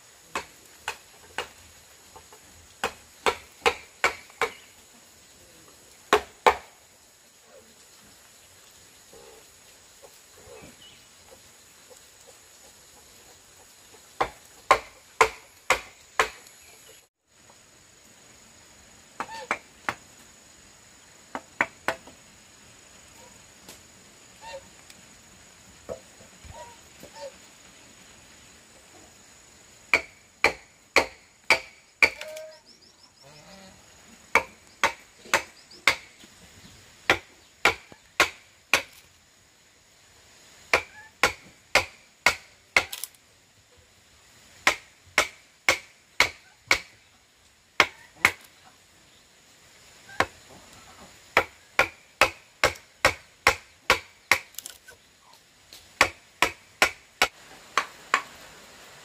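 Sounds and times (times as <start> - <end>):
tool striking wood: 2.8 - 4.6, 29.9 - 32.3, 34.3 - 36.1, 40.7 - 43.1.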